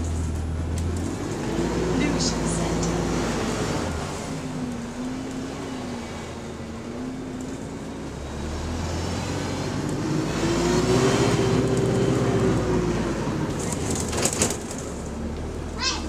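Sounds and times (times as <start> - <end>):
bus drivetrain rumble and whine: 0.0 - 16.0.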